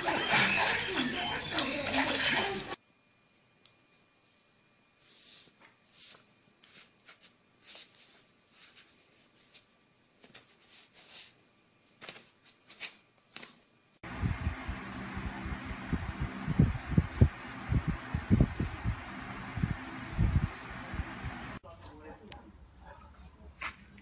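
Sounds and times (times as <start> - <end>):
paper rustling and crinkling: 5.0 - 13.7
low rumble: 14.0 - 21.6.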